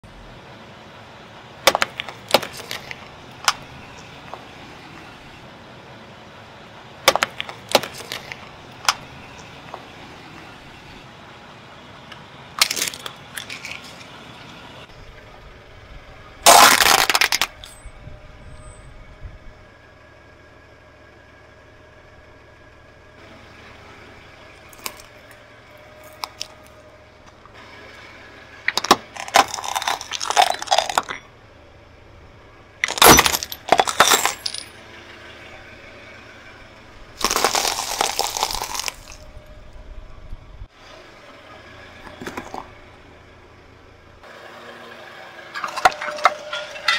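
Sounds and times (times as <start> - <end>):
tyre crushing small objects: 1.7 - 4.4, 7.1 - 9.8, 12.6 - 14.1, 16.5 - 17.8, 24.7 - 25.4, 26.0 - 26.8, 28.7 - 31.3, 32.8 - 34.8, 37.2 - 39.2, 42.0 - 42.7, 45.6 - 46.9.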